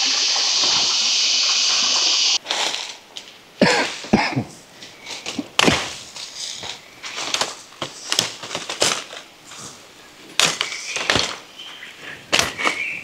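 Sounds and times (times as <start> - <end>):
leaves and twigs crackling: 0.0 - 4.1, 4.8 - 13.0
branches snapping: 5.0 - 9.3, 10.4 - 11.5.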